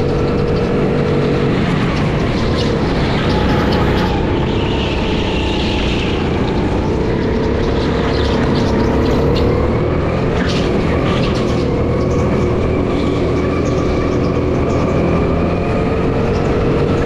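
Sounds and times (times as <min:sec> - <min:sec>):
go-kart engine running: 0:00.0 - 0:17.0.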